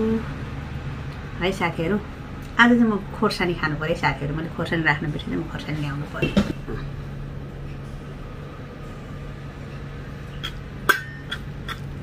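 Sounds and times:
steady low hum: 0:00.0 - 0:12.0
sharp clink: 0:10.4 - 0:11.8.

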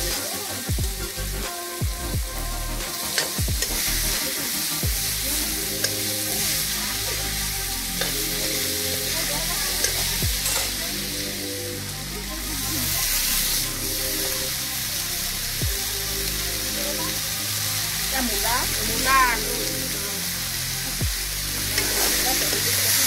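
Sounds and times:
vegetables sizzling in a pan: 0:00.0 - 0:23.0
spatula scraping a pan: 0:08.0 - 0:10.8, 0:21.6 - 0:23.0.

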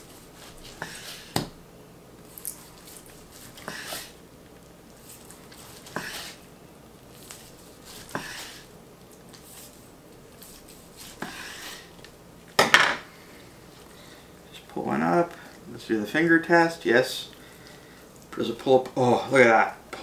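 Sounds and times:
knife slicing meat on board: 0:07.2 - 0:08.7, 0:10.4 - 0:11.9.

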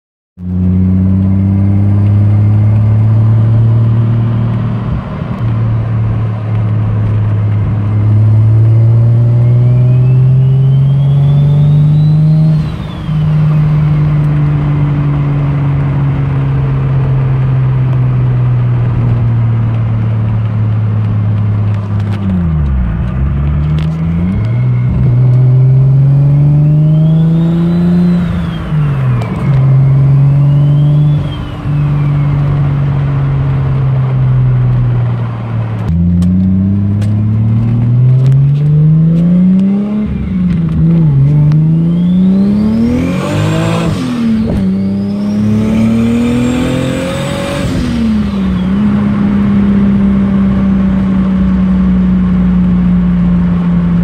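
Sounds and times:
car engine revving through gears: 0:00.4 - 0:54.0.

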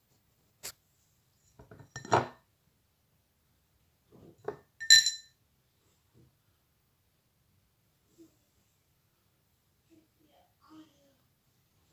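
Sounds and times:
china plate knocking and clinking: 0:01.6 - 0:02.4, 0:04.4 - 0:05.3.

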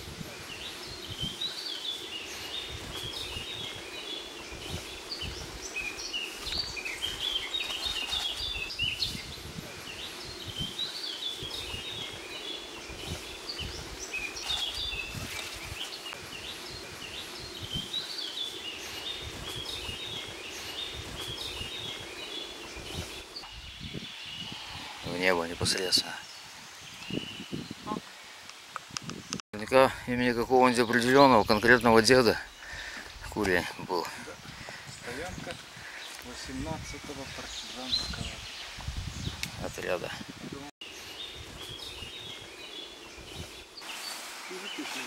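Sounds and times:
steady background hiss: 0:00.0 - 0:27.3, 0:40.8 - 0:45.0
birds chirping: 0:00.0 - 0:45.0.

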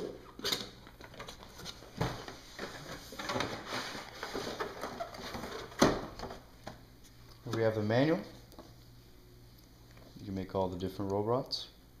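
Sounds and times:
cardboard scraping and rustling: 0:01.5 - 0:05.9.

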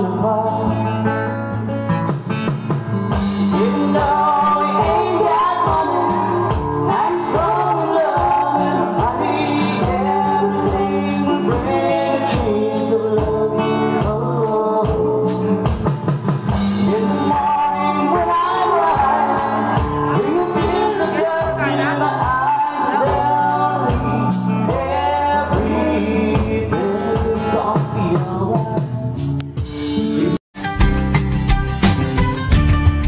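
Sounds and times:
drums: 0:00.0 - 0:33.0
guitar: 0:00.0 - 0:33.0
person singing: 0:03.4 - 0:15.8, 0:16.7 - 0:30.4.

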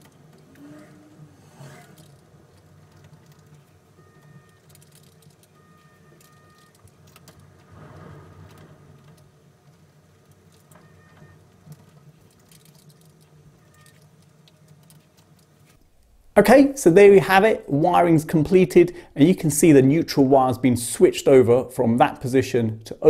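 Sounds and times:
clicks and rustles of wires: 0:00.0 - 0:16.2
low steady hum: 0:00.0 - 0:23.0.

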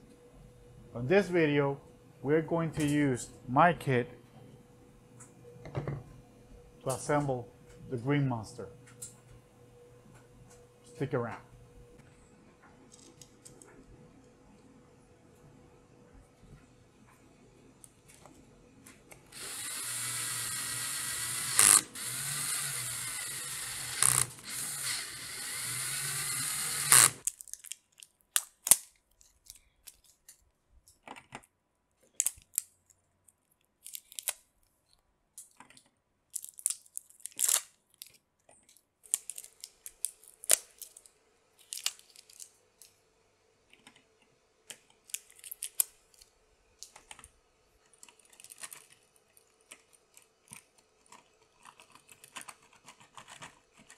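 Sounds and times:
cordless drill driving screws: 0:19.3 - 0:27.2.

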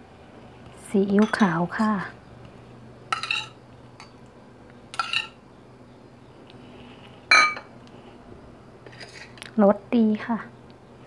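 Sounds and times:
metal spoon clinking on bowl: 0:01.2 - 0:02.0, 0:03.1 - 0:04.2, 0:04.9 - 0:05.4.

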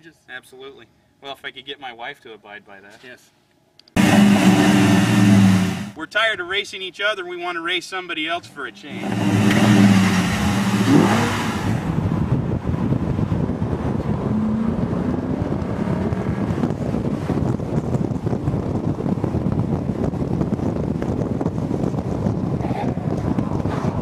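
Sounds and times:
car engine and tyre noise: 0:04.0 - 0:06.0, 0:08.8 - 0:24.0
engine revving: 0:04.0 - 0:06.0, 0:08.8 - 0:12.3, 0:13.6 - 0:17.5
wind rushing over microphone: 0:08.9 - 0:24.0.

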